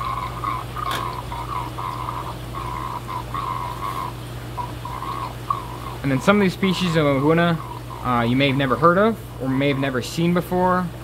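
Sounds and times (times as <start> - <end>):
water trickling and gurgling: 0.0 - 8.1
low pump hum: 0.0 - 11.0.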